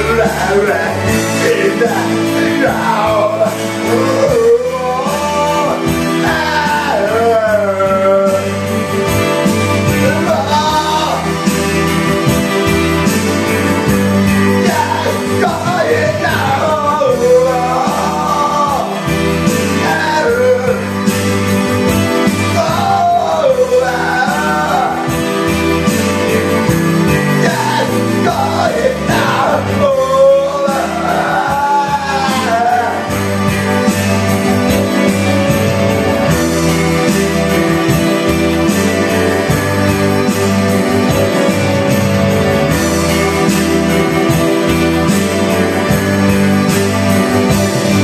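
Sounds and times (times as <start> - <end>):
man singing into microphone: 0.0 - 8.9, 9.9 - 11.4, 14.5 - 21.3, 22.0 - 25.6, 27.3 - 33.6
karaoke backing track: 0.0 - 48.0.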